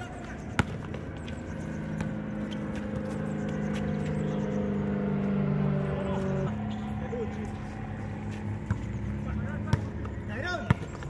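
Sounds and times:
basketball bouncing: 0.0 - 4.1, 8.6 - 9.0, 9.6 - 11.0
vehicle engine running: 0.0 - 11.0.

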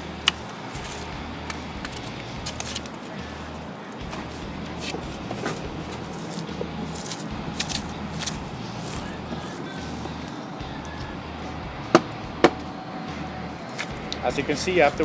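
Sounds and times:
styrofoam scraping and crackling: 1.8 - 10.4.

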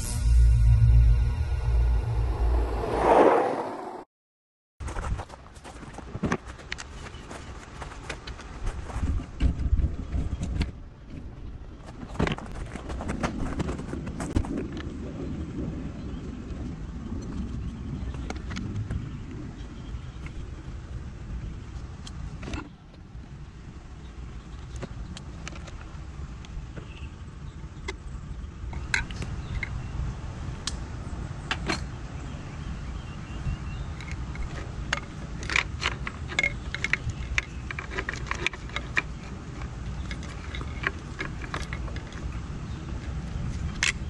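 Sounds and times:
low rumble: 0.0 - 4.1.

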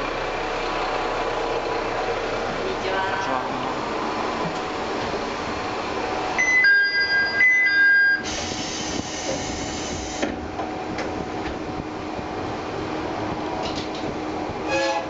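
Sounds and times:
railcar running noise: 0.0 - 15.0
compressed air hiss: 8.2 - 10.3.

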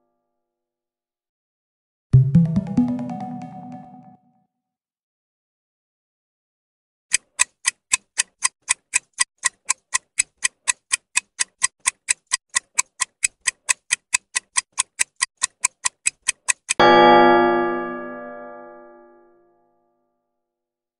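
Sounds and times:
countdown timer ticking: 2.2 - 4.2, 7.1 - 17.2.

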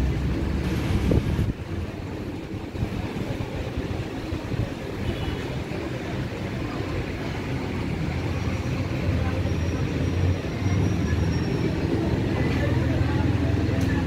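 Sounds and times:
wind buffeting microphone: 0.6 - 5.1.

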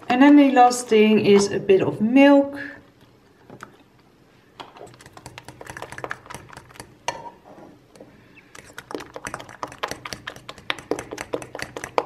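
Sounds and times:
spoon stirring batter in bowl: 4.6 - 12.0.

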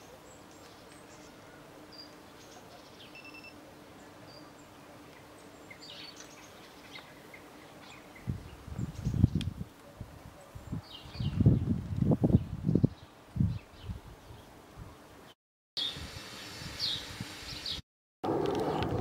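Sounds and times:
wind buffeting microphone: 8.2 - 14.4, 18.2 - 19.0.

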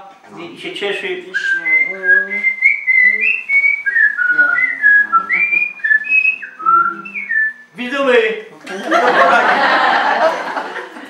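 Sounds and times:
man whistling birdsong: 1.4 - 7.8.

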